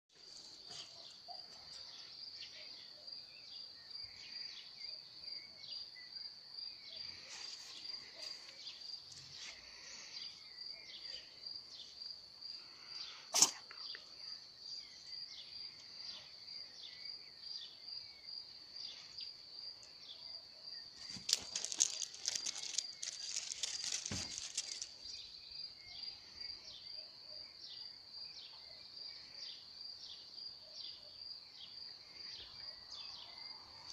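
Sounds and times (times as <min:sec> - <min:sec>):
crickets chirping: 0:00.2 - 0:33.9
rustling crunching noise: 0:21.0 - 0:25.2.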